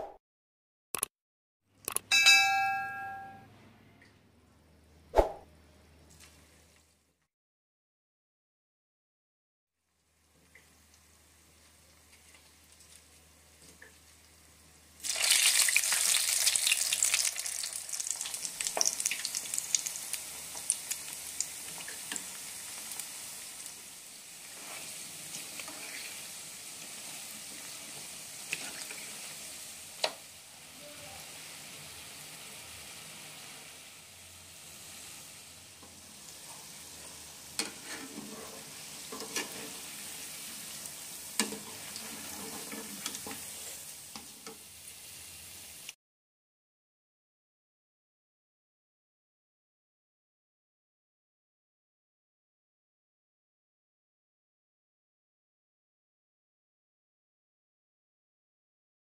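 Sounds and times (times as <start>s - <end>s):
dough balls sizzling in hot oil: 9.8s - 46.0s.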